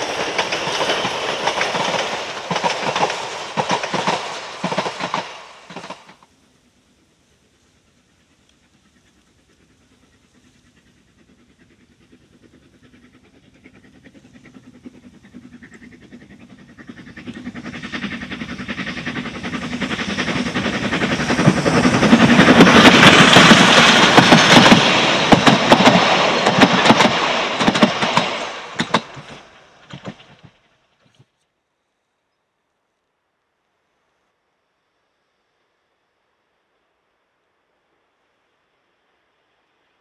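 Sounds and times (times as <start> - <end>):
wheels clattering over rails: 0.0 - 6.2, 16.8 - 30.6
steam train passing: 0.0 - 31.1.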